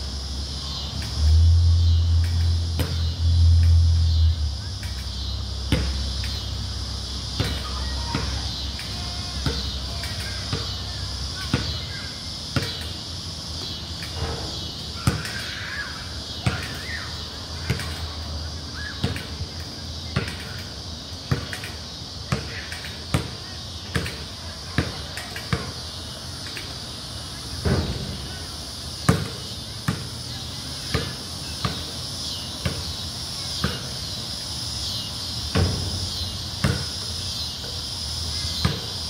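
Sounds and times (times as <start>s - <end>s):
basketball bouncing on concrete: 2.8s - 3.1s, 5.7s - 6.1s, 9.4s - 9.8s, 12.6s - 12.8s, 29.1s - 30.1s, 30.9s - 31.8s, 36.6s - 37.0s, 38.6s - 39.0s.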